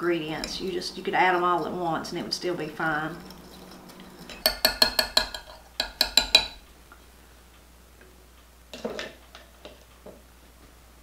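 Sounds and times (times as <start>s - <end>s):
whisk tapping glass cup: 2.8s - 6.6s.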